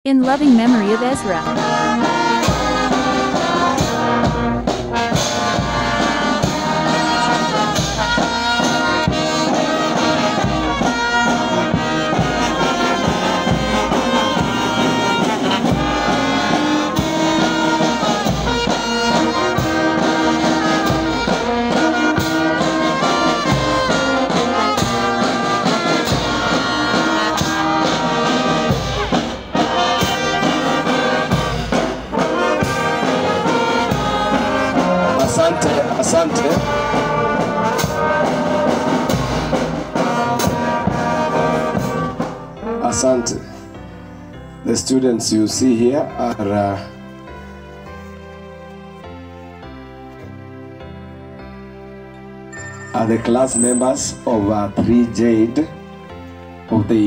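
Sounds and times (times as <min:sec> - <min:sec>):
bass drum beat: 0:00.1 - 0:06.1
brass horns sustained notes: 0:00.1 - 0:57.0.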